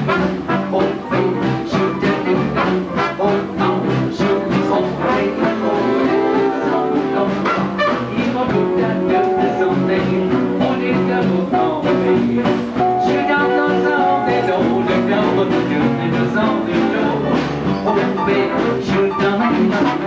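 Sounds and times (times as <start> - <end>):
swing big band playing: 0.0 - 20.0.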